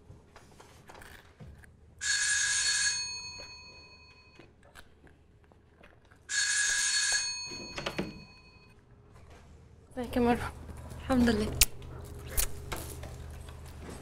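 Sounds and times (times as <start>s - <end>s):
electric doorbell ringing: 2.0s - 4.4s, 6.3s - 8.7s.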